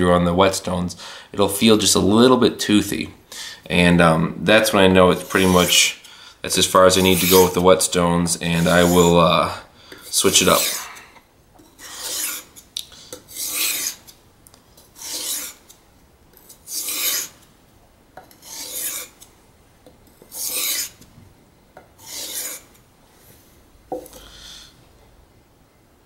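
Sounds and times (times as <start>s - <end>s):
knife on whetstone: 5.2s - 5.8s, 6.9s - 7.6s, 8.6s - 9.2s, 10.1s - 14.2s, 14.8s - 15.7s, 16.4s - 17.4s, 18.2s - 19.2s, 20.3s - 21.0s, 22.0s - 22.8s.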